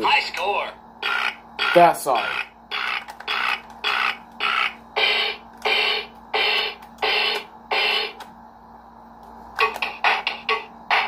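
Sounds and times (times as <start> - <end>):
harsh electronic toy sounds: 1.0 - 8.2, 9.6 - 11.0.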